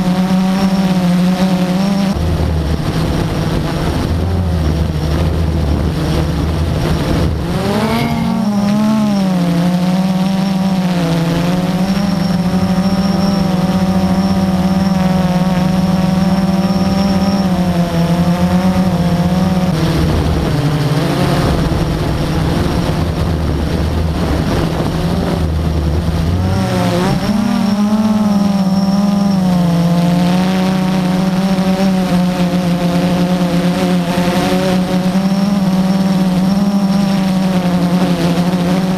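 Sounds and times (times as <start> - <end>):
drone propellers whirring: 0.0 - 38.9
wind rumble on microphone: 0.0 - 38.9.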